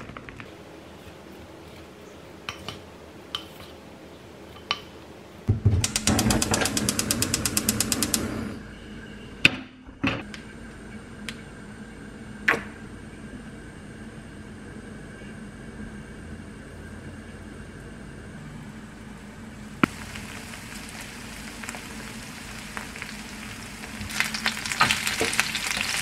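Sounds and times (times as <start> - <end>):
gas igniter clicking: 5.8 - 8.6.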